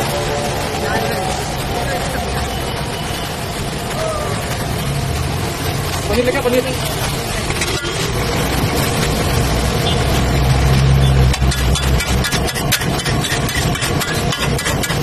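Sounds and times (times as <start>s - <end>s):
metal spatula scraping griddle: 10.7s - 15.0s.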